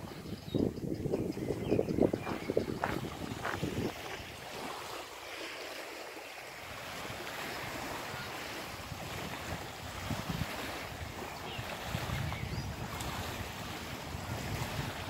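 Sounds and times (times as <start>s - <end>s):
wind buffeting microphone: 0.0s - 5.0s, 6.6s - 15.0s
waves on pebble beach: 2.4s - 15.0s.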